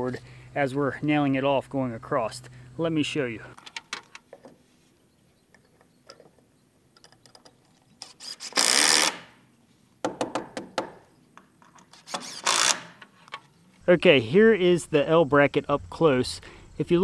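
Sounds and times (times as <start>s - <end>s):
cordless drill driving screws: 8.0s - 9.2s, 12.0s - 12.9s.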